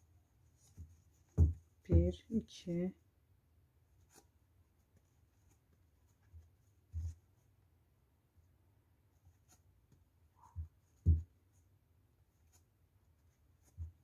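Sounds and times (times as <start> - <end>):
short dull thumps: 0.6 - 2.4, 10.4 - 11.4
faint scratching of yarn: 4.0 - 7.5.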